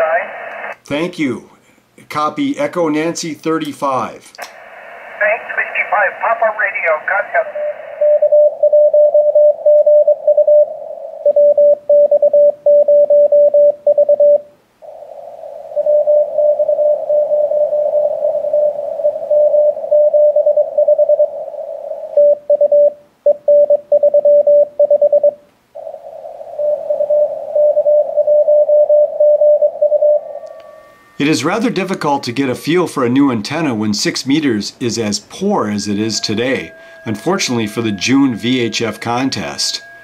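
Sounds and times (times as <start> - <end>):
receiver hiss: 0.0 - 2.0, 3.5 - 8.8, 14.5 - 23.2, 25.4 - 40.0
morse code tone: 26.6 - 32.8, 35.3 - 40.0.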